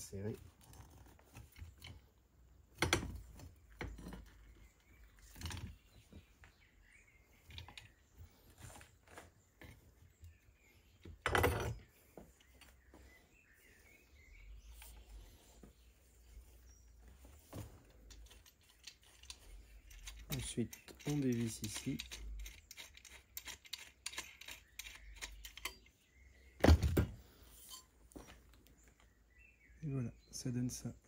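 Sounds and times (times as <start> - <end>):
faint bird chirps: 3.3 - 23.1, 27.3 - 31.0
rivet tool metallic clicks: 18.2 - 25.9.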